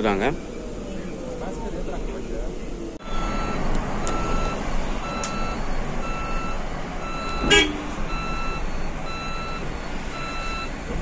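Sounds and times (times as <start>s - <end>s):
bus cabin rumble: 0.0s - 11.0s
electronic warning beeper: 3.0s - 10.7s.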